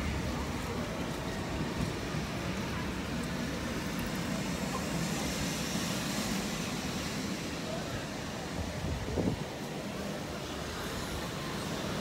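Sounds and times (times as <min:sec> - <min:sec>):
rain hiss: 0:00.0 - 0:12.0
wind buffeting microphone: 0:08.4 - 0:09.9.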